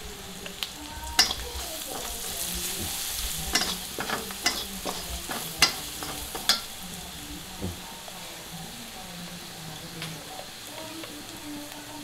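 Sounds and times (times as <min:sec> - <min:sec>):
food sizzling in oil: 0:00.0 - 0:12.0
ladle stirring and scraping: 0:01.0 - 0:07.9
ladle clinking on wok: 0:01.2 - 0:06.7.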